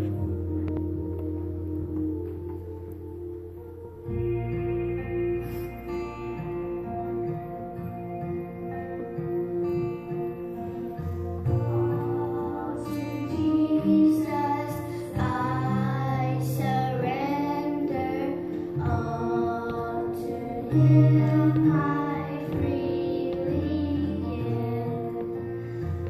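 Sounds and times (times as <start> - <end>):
instrumental accompaniment: 0.0 - 26.0
girl singing into a microphone: 11.4 - 26.0.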